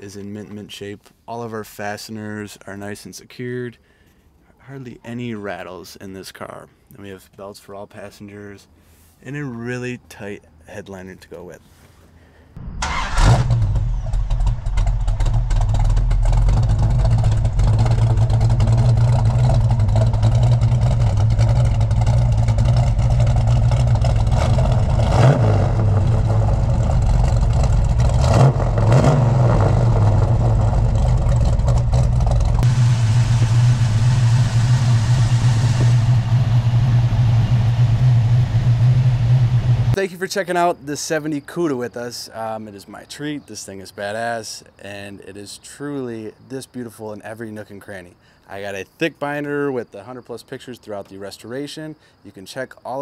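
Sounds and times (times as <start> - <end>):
car engine idling: 12.6 - 40.0
engine throttle blips: 12.6 - 40.0.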